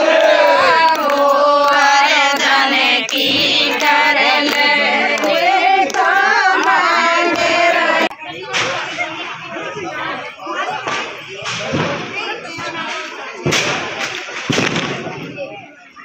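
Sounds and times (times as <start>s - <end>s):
high voices singing: 0.0s - 11.6s.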